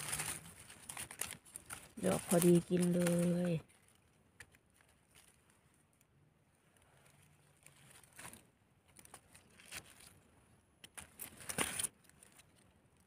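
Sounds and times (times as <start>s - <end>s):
dry leaf litter crackling: 0.0s - 5.8s, 7.0s - 10.2s.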